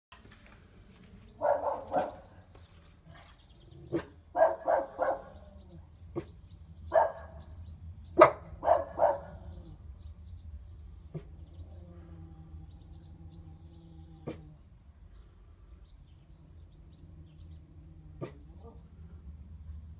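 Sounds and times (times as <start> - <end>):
dog barking: 1.4 - 2.4, 3.9 - 5.5, 6.9 - 7.4, 8.2 - 9.5, 18.2 - 18.8.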